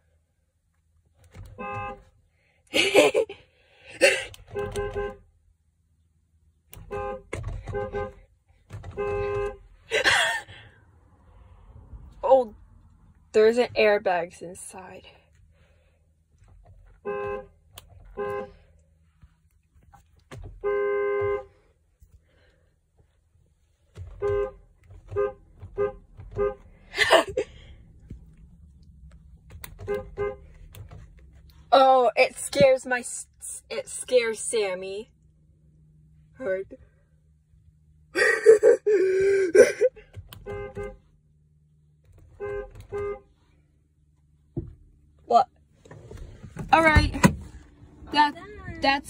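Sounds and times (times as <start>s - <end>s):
car horn: 1.3s - 2.2s, 4.0s - 5.3s, 6.7s - 9.9s, 16.9s - 18.8s, 20.3s - 21.7s, 24.0s - 27.4s, 29.5s - 31.0s, 40.2s - 41.1s, 42.1s - 43.4s.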